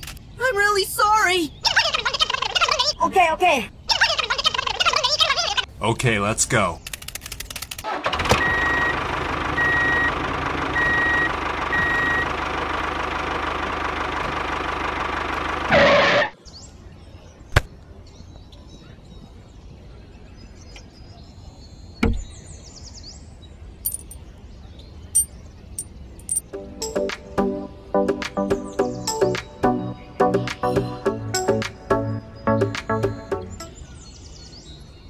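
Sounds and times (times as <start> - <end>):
vehicle engine running: 8.3 - 15.8
reversing alarm beeping: 8.4 - 9.0, 9.6 - 10.2, 10.8 - 12.3
small parts clicking and tapping: 23.9 - 24.2, 26.2 - 26.4.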